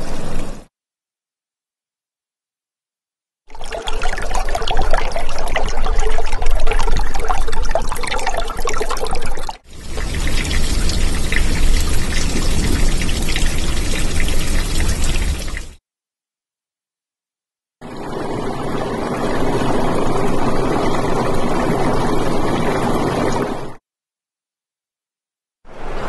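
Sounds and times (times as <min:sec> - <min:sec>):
water pouring and trickling: 0:03.5 - 0:15.8, 0:18.8 - 0:23.7.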